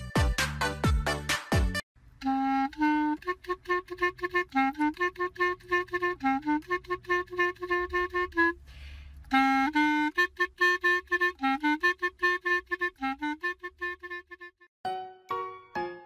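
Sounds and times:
bouncy staccato background music: 0.0 - 1.8.

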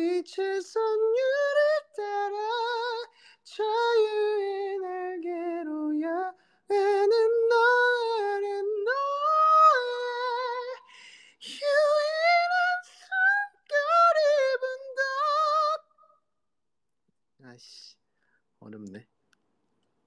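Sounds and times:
man singing unaccompanied: 0.0 - 15.9.

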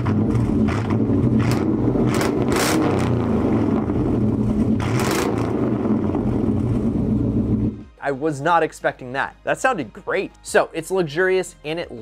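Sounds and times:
deep car exhaust note: 0.0 - 8.0.

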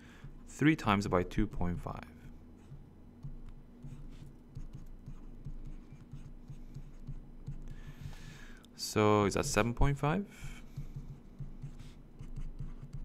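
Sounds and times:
low steady hum: 0.0 - 13.0
stylus tapping and scratching: 2.6 - 8.3, 10.4 - 13.0.

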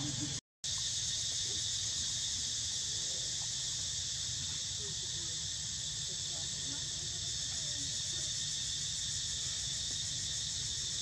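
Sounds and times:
insect chorus droning: 0.0 - 11.0.

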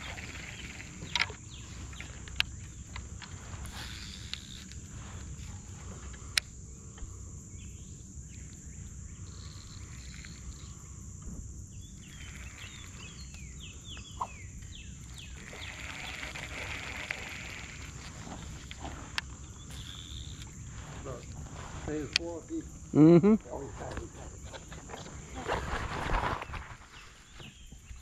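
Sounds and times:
steady high hum: 0.0 - 25.4
animal chirps: 11.9 - 16.3.

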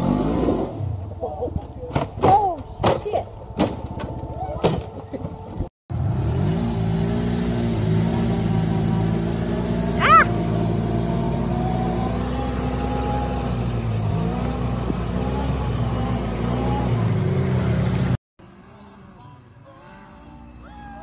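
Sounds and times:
utility vehicle engine running: 3.8 - 18.2.

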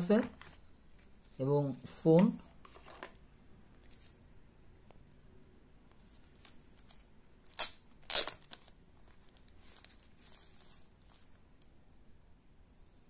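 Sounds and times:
plastic film crinkling: 5.9 - 11.4.

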